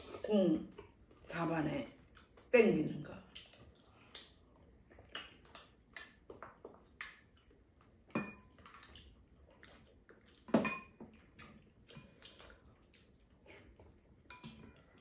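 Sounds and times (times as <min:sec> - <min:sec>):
spoons clinking on bowls: 0:08.2 - 0:08.5, 0:10.6 - 0:11.0.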